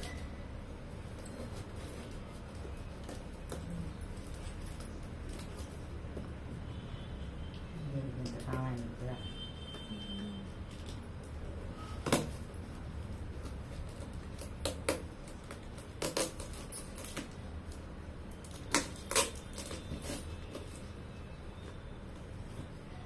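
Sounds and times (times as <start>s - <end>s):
cardboard and tape crackling: 12.0s - 21.0s.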